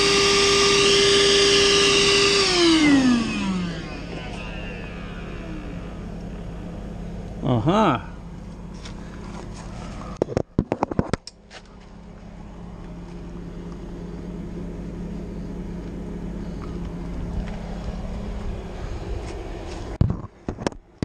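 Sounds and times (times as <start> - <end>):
low machine hum: 0.0 - 20.4
sharp knocks and clatters: 10.2 - 11.3.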